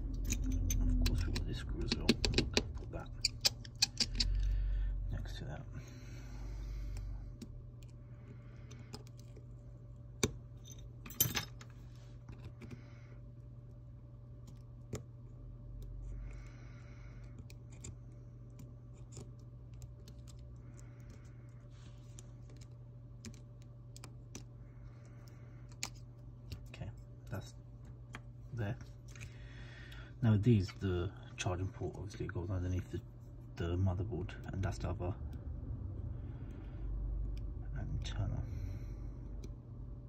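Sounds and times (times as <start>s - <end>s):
steady low hum: 0.0s - 40.0s
small tools clicking and tapping: 0.1s - 4.5s.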